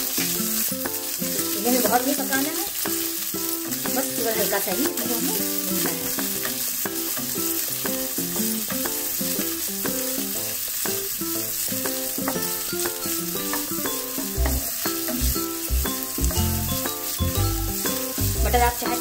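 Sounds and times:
vegetables sizzling in oil: 0:00.0 - 0:19.0
music of short pitched notes: 0:12.4 - 0:19.0.

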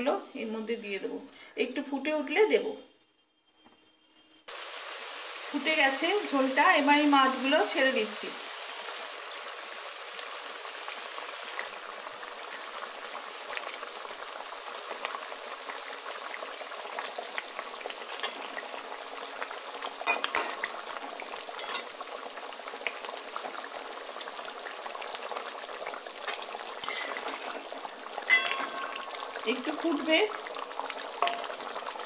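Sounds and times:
curry bubbling in a pan: 0:04.5 - 0:32.0
utensil clattering against pan: 0:28.3 - 0:29.1.

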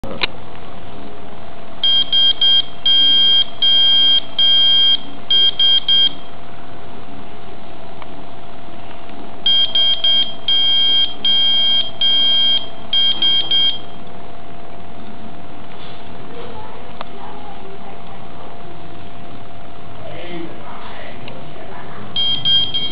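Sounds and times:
buzzer beeping morse code: 0:01.8 - 0:06.3, 0:09.5 - 0:14.0, 0:22.2 - 0:22.9.

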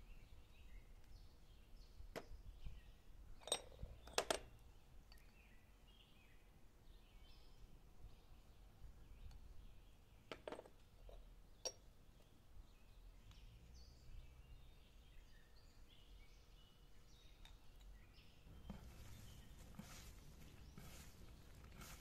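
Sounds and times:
faint bird chirps: 0:00.0 - 0:10.3.

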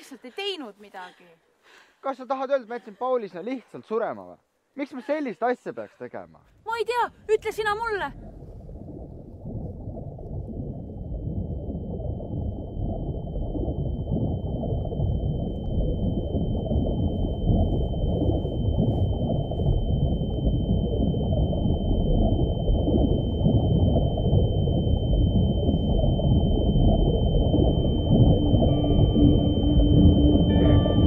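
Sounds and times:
low rumbling drone: 0:08.1 - 0:31.0
high-pitched ringing tone: 0:11.2 - 0:31.0.

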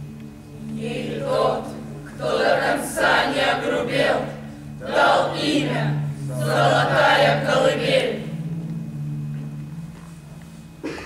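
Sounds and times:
steady low drone: 0:00.0 - 0:11.0
crowd chanting: 0:00.8 - 0:08.3.

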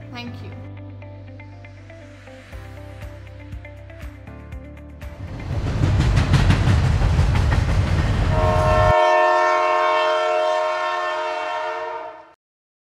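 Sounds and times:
train rumbling on rails: 0:05.1 - 0:11.2
train horn blast: 0:08.2 - 0:12.4.

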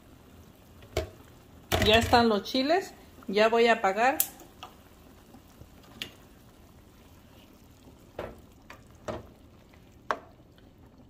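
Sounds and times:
chiles sizzling in oil: 0:00.0 - 0:11.0
spoon stirring and knocking pan: 0:00.8 - 0:02.2, 0:10.0 - 0:10.4.

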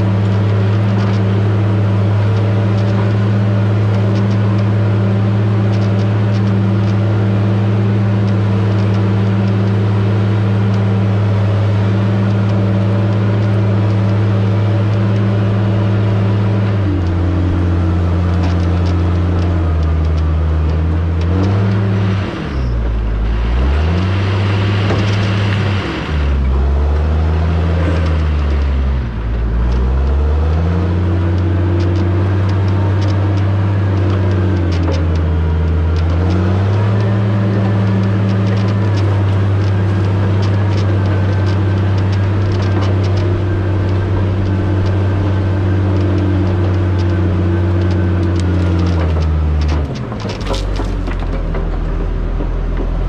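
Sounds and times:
diesel engine revving: 0:00.0 - 0:53.0
faint metallic clicks: 0:22.5 - 0:53.0.

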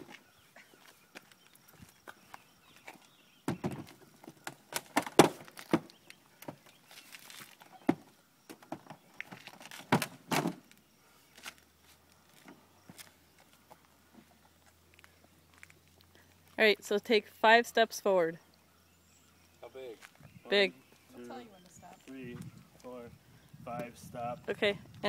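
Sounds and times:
knocks and thumps: 0:03.4 - 0:05.9.

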